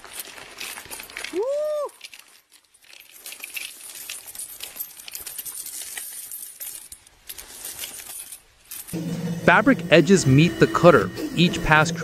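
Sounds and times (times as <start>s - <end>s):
coins clinking and jingling: 0.0s - 9.0s.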